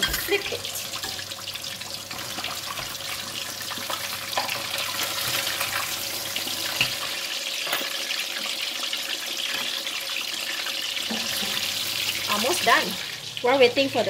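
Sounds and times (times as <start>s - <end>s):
utensils knocking against pan: 0.0s - 1.2s
hot oil sizzling and crackling: 0.0s - 14.0s.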